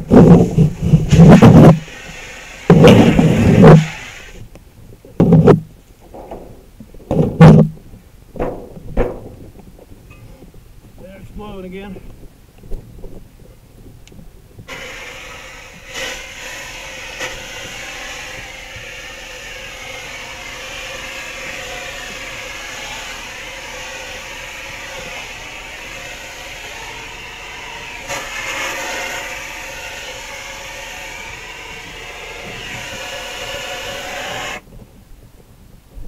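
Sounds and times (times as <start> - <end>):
fire hose stream hissing: 0.0 - 4.5, 14.7 - 34.6.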